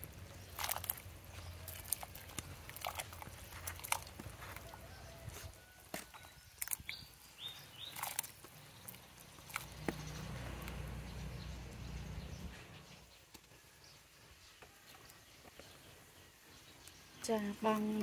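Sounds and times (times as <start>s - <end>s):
bird chirps: 4.8s - 18.0s.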